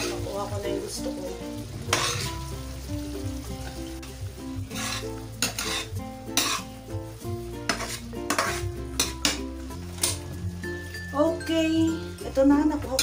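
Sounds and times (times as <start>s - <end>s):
metal spatula scraping frying pan: 0.0s - 0.5s, 1.8s - 2.6s, 3.6s - 6.9s, 7.6s - 10.4s
background music: 0.0s - 13.0s.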